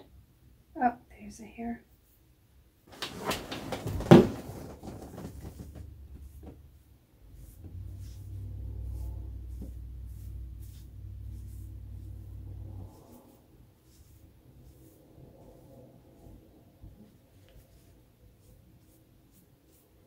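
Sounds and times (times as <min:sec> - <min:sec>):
rustling handling noise: 0:02.9 - 0:13.2
low steady rumble: 0:04.5 - 0:19.8.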